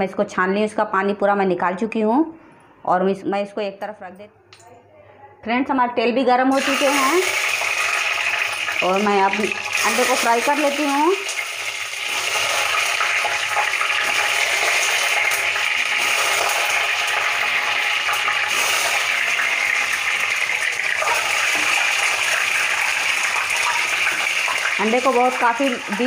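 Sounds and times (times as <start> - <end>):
eggs sizzling in hot oil: 6.5 - 26.0.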